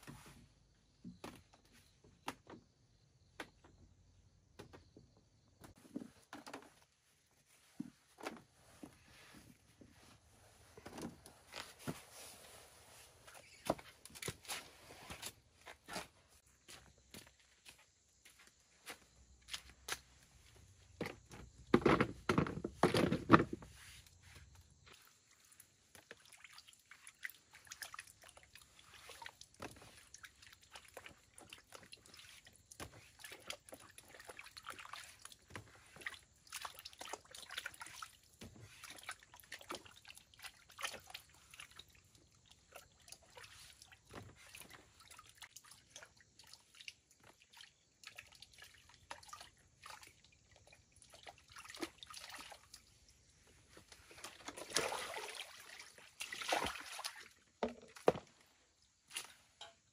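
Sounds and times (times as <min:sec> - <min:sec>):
water sloshing and trickling: 0:00.0 - 0:59.9
small splashes: 0:24.7 - 0:59.9.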